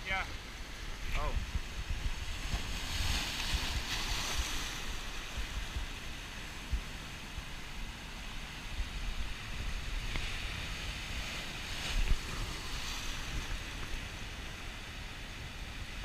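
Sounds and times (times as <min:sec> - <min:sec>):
surf breaking over rocks: 0:00.8 - 0:07.8, 0:08.4 - 0:14.3
wind buffeting microphone: 0:00.8 - 0:07.8, 0:08.5 - 0:14.1.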